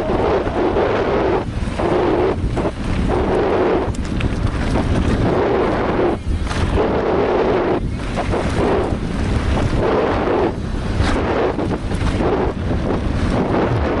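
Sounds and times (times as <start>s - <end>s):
wind rushing over microphone: 0.0s - 14.0s
bike rattling over rocky gravel: 2.4s - 6.8s, 7.8s - 9.8s, 10.6s - 14.0s.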